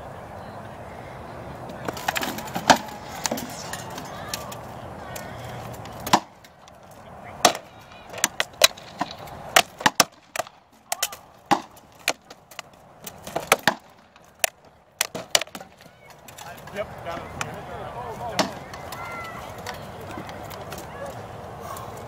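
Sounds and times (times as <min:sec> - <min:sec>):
swords striking shields and armour: 0:01.9 - 0:04.2, 0:05.9 - 0:06.4, 0:07.4 - 0:15.7.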